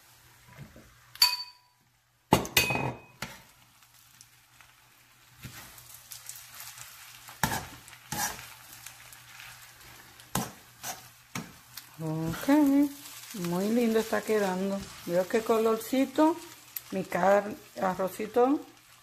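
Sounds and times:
rice sizzling in a frying pan: 0.0s - 2.4s, 3.2s - 19.0s
ringing clink: 1.2s - 1.7s
metal spoon scraping a pan: 7.3s - 8.9s, 9.9s - 11.6s.

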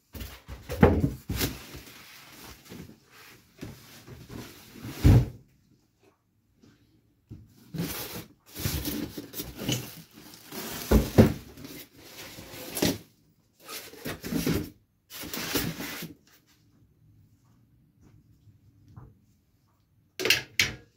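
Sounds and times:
packaging rubbing and scraping: 7.7s - 13.0s.

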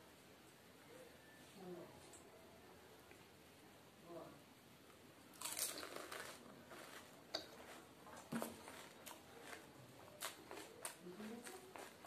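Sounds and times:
crunchy shell being chewed: 5.4s - 12.0s.

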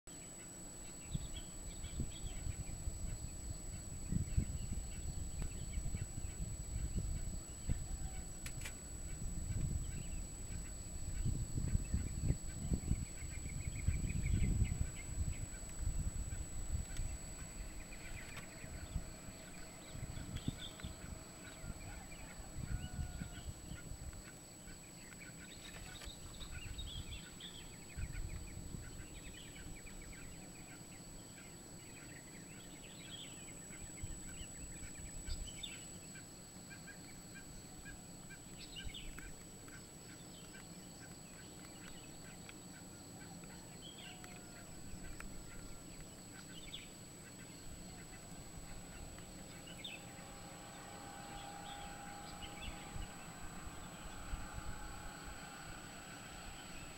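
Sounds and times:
faint high whine: 0.1s - 56.9s
birds chirping and calling: 0.2s - 56.9s
low rumbles: 47.6s - 56.9s.

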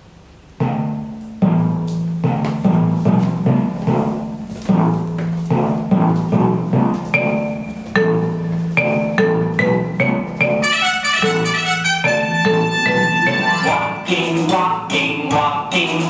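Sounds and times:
instrumental music with struck notes: 0.4s - 16.0s
run of high notes: 10.4s - 14.1s.

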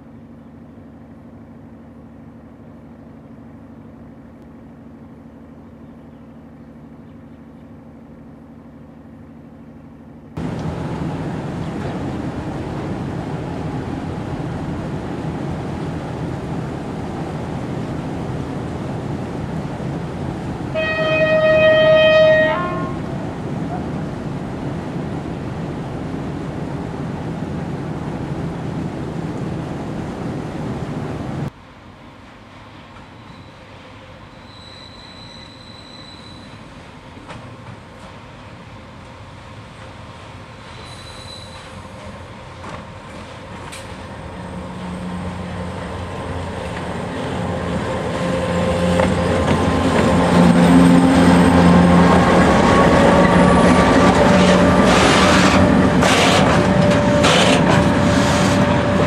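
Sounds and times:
train horn: 20.7s - 23.1s, 47.7s - 59.0s.

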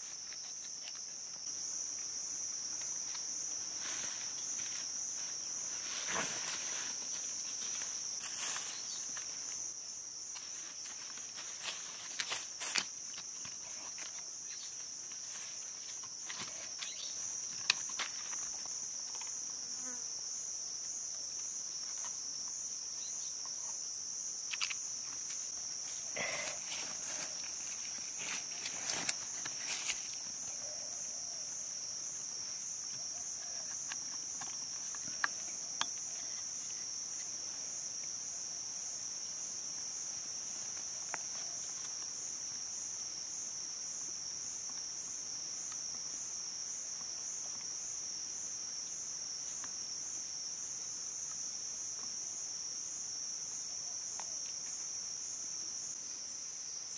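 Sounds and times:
high-pitched insect chorus: 0.0s - 56.9s
bamboo pieces clicking and knocking: 16.0s - 19.4s, 32.9s - 36.5s.

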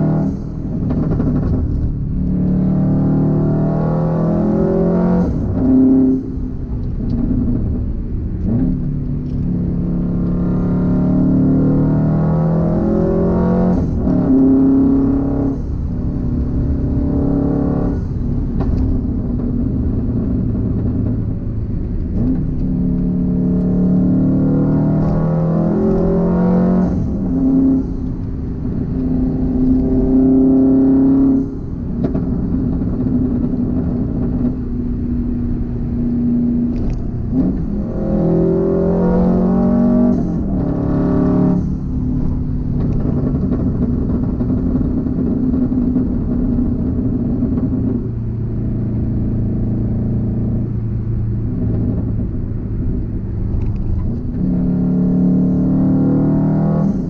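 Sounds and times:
car engine and exhaust: 0.0s - 57.0s.

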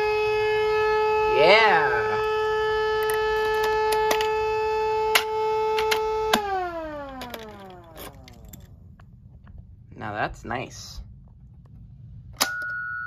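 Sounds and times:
motor siren tone winding down: 0.0s - 8.5s.

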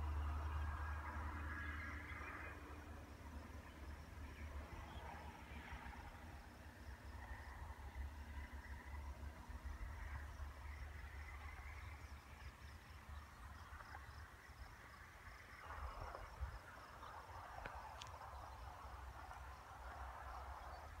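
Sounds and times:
faint crickets chirping: 0.0s - 21.0s
wind rumble on microphone: 7.2s - 21.0s.

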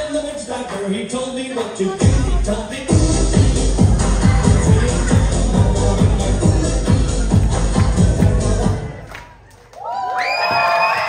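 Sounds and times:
dance music: 0.0s - 9.6s
audience cheering and shouting: 9.7s - 11.0s
children's voices cheering: 9.7s - 11.0s.

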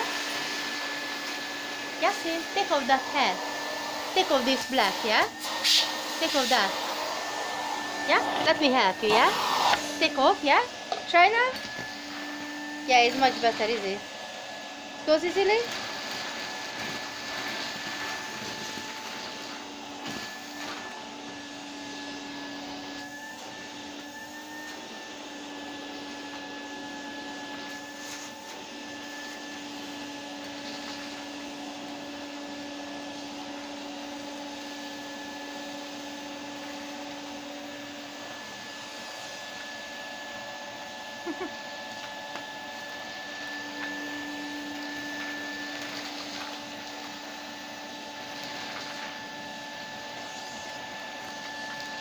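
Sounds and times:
vacuum cleaner motor whine: 0.0s - 52.0s
vacuum wand sucking paper: 0.0s - 52.0s.

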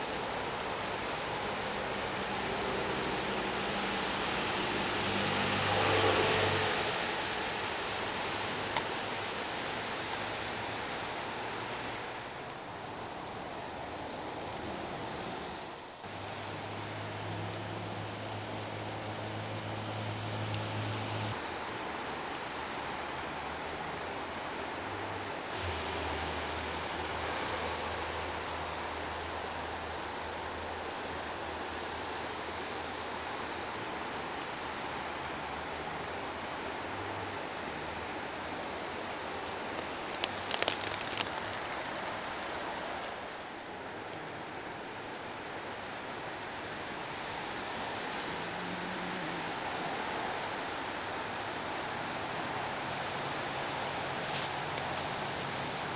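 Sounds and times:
rushing water: 0.0s - 55.9s
sharp crackling clicks: 39.8s - 42.6s.

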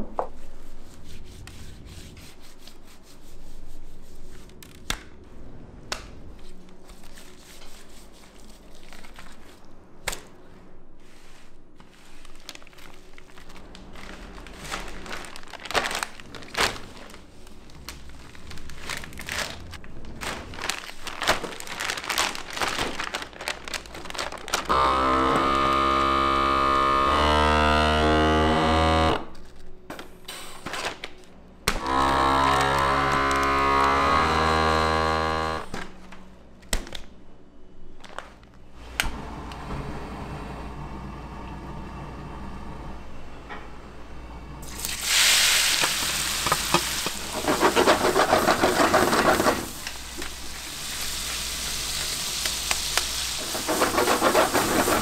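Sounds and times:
plastic crinkling: 8.5s - 9.7s, 11.8s - 24.8s, 38.0s - 38.6s.

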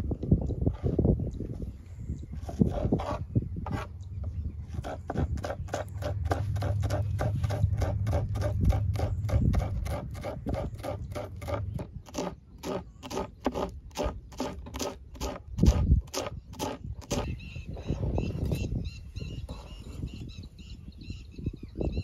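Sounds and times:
low rumble: 4.0s - 12.0s.

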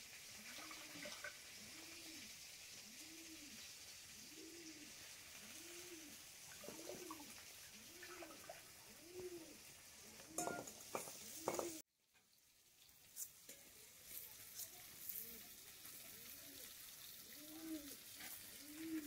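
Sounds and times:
dove cooing: 0.4s - 11.8s, 15.2s - 19.0s.

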